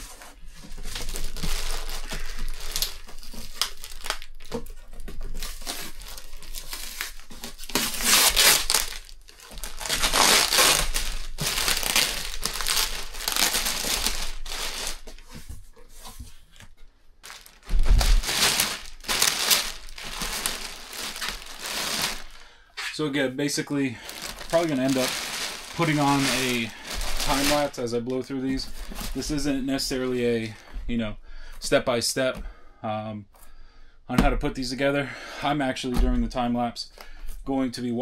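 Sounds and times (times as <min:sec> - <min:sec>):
plastic bag crinkling: 0:00.7 - 0:15.9, 0:17.2 - 0:22.6, 0:23.9 - 0:30.6.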